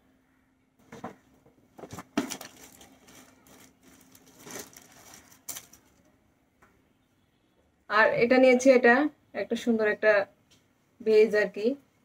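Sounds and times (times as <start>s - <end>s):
objects rustling and clicking: 0.8s - 6.1s.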